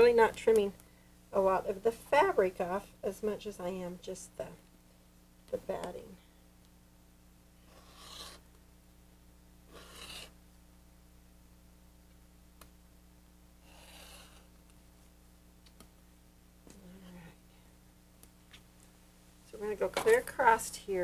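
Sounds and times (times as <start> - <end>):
rotary cutter cutting fabric: 9.7 - 10.4.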